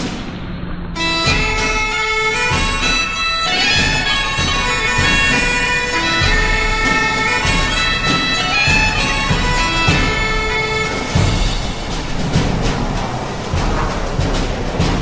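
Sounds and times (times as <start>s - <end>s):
steady low beat: 0.0s - 15.0s
sustained held tones: 1.0s - 12.4s
reedy bagpipe-like melody: 1.0s - 12.6s.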